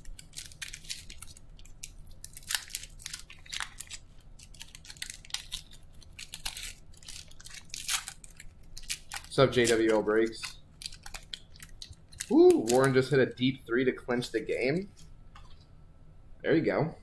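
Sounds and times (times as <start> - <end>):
foil wrapper crinkling and tearing: 0.0 - 13.5.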